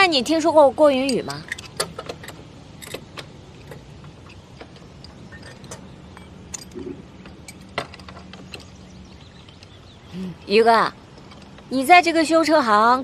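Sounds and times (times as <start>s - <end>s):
steady low hum: 0.0s - 13.0s
hand tools clicking on metal: 1.0s - 8.8s.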